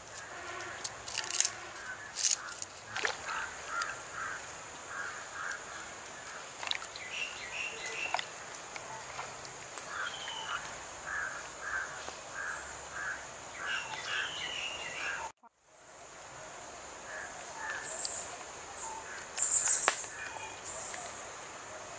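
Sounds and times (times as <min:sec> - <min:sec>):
hands handling wet leaves: 0:00.0 - 0:10.8
high insect drone: 0:00.0 - 0:21.9.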